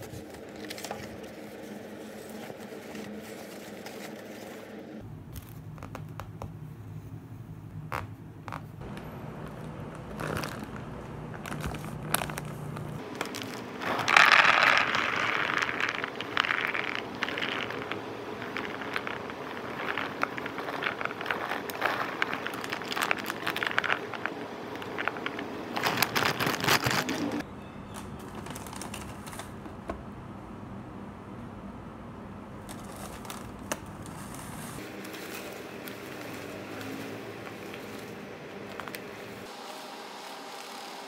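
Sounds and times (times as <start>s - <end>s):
tapioca pearls rattling in plastic tub: 10.1s - 27.4s.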